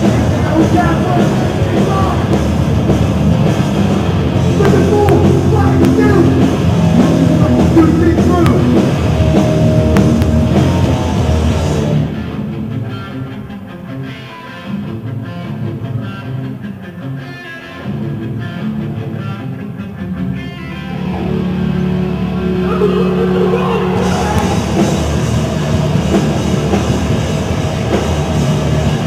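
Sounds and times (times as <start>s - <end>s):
punk band playing: 0.0s - 29.0s
quiet guitar and bass: 0.0s - 29.0s
shouted vocals: 22.4s - 25.0s.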